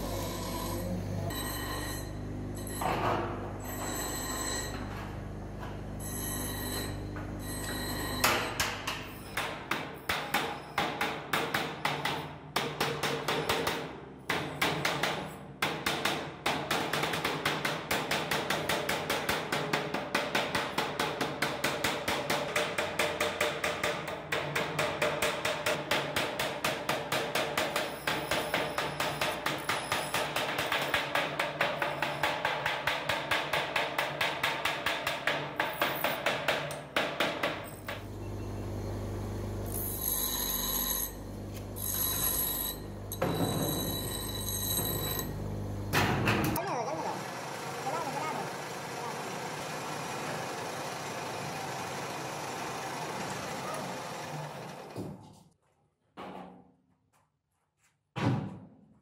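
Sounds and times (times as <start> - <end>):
hammering on metal: 8.2 - 38.0.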